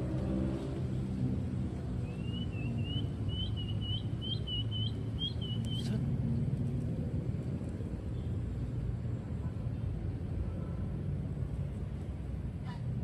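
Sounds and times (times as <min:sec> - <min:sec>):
bird chirping: 0:02.0 - 0:05.9.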